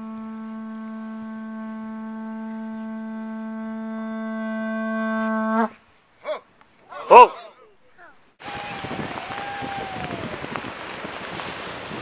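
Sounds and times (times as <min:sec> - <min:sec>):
conch shell blown: 0:00.0 - 0:05.8.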